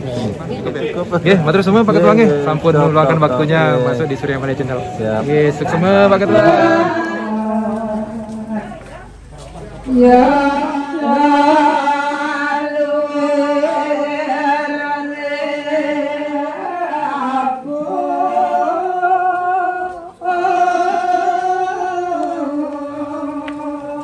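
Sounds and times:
person chanting in long gliding notes: 0:05.8 - 0:08.8.

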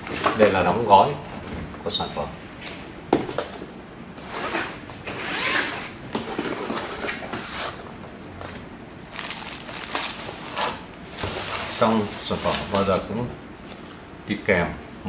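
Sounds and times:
packaging rustling: 0:08.9 - 0:14.1.

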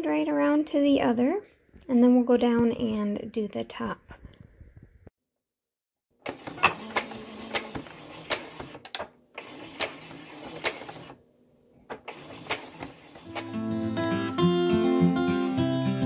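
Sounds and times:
sewing machine stitching: 0:06.2 - 0:11.2, 0:11.9 - 0:13.6.

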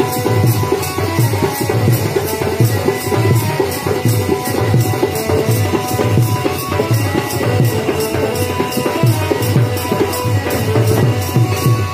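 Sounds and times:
drums beating steady rhythm: 0:00.0 - 0:11.9
held instrument notes: 0:00.0 - 0:11.9
high percussion ticking: 0:00.0 - 0:11.9.

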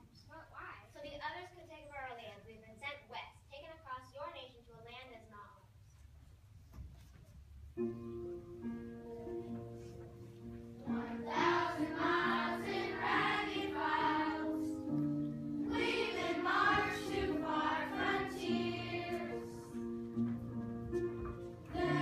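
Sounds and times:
instrumental accompaniment: 0:07.8 - 0:22.0
children singing: 0:10.9 - 0:14.9, 0:15.6 - 0:19.8, 0:21.7 - 0:22.0.

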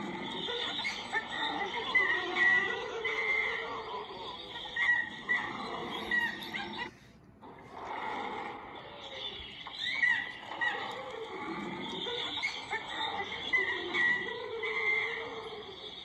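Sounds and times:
wild animal calls: 0:00.0 - 0:16.0
bird-like chirps: 0:08.8 - 0:16.0.

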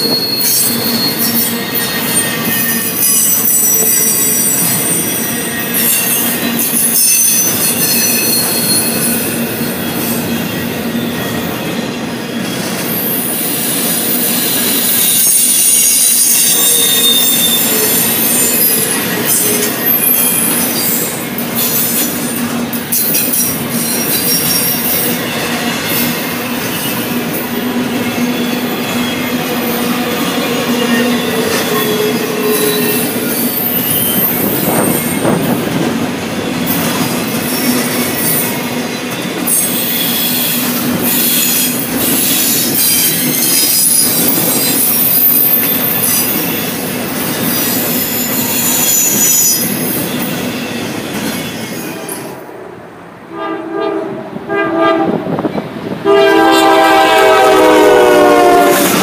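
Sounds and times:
high-pitched wheel squeal: 0:00.0 - 0:22.2, 0:27.8 - 0:35.6, 0:36.4 - 0:52.4
train wheels clicking on rails: 0:00.0 - 0:52.5.

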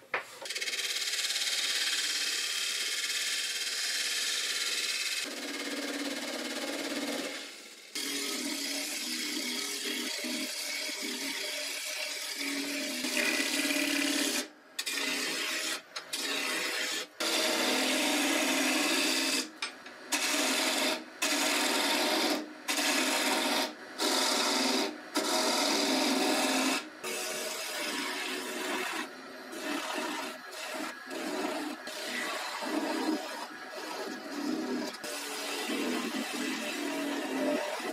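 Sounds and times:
gouge shaving wood on lathe: 0:00.5 - 0:19.5, 0:20.1 - 0:37.9.

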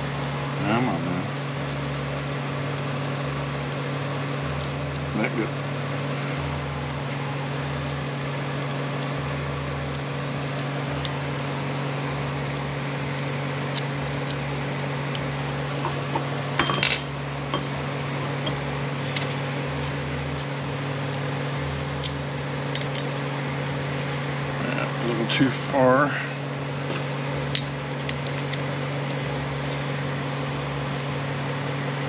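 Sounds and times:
steady background hum: 0:00.0 - 0:32.0
metal parts clinking: 0:16.6 - 0:17.1.

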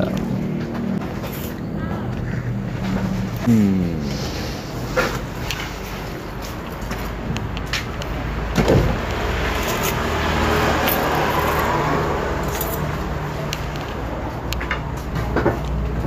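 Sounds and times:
steady low hum: 0:01.6 - 0:05.6
vehicle passing: 0:05.9 - 0:15.0.

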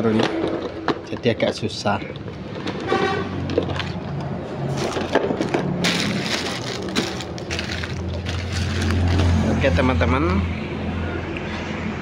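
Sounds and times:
plastic bags crinkling: 0:00.1 - 0:09.4.

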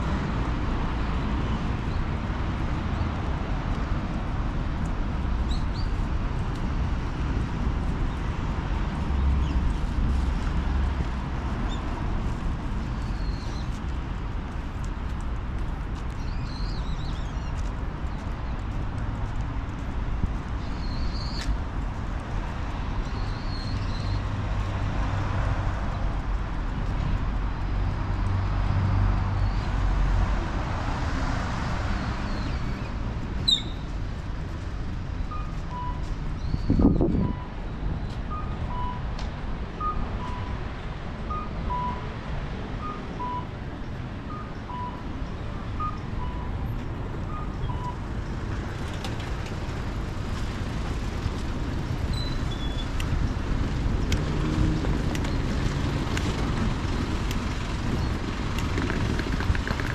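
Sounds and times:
street traffic: 0:00.0 - 0:59.9
two-tone electronic beep: 0:35.4 - 0:36.1, 0:38.3 - 0:39.0, 0:39.8 - 0:40.6, 0:41.3 - 0:42.1, 0:42.8 - 0:43.5, 0:44.3 - 0:45.0, 0:45.8 - 0:46.5
vehicle passing: 0:53.1 - 0:59.9.

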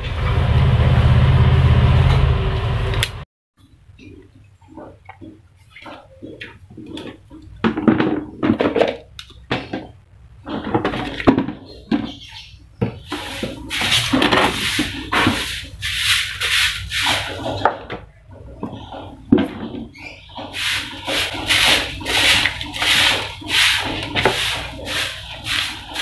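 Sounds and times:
broom sweeping concrete: 0:13.0 - 0:17.7, 0:20.4 - 0:26.0.

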